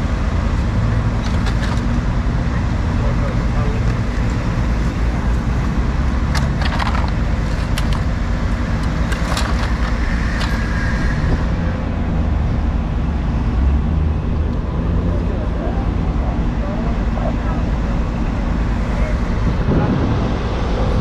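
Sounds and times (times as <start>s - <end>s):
highway traffic: 0.0s - 21.0s
sharp clicks and knocks: 1.1s - 2.0s, 6.2s - 10.7s.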